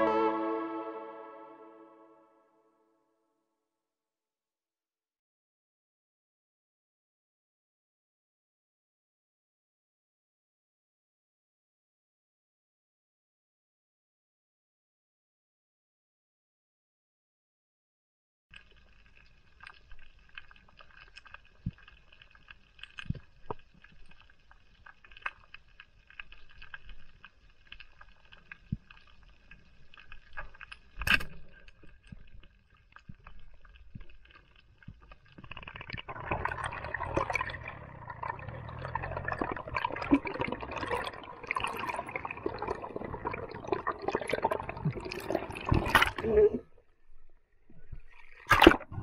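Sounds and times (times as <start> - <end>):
underwater clicks and crackle: 18.5 - 49.0
rushing bubbling water: 35.4 - 46.5, 48.0 - 49.0.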